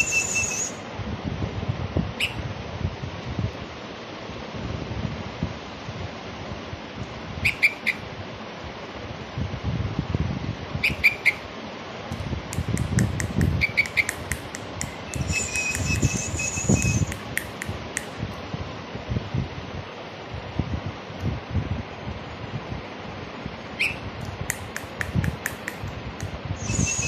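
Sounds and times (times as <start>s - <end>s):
birds chirping: 7.4s - 8.0s, 10.8s - 11.5s, 13.6s - 17.2s, 23.8s - 25.8s, 26.6s - 27.0s
sharp ticks: 12.5s - 15.8s, 24.5s - 26.4s.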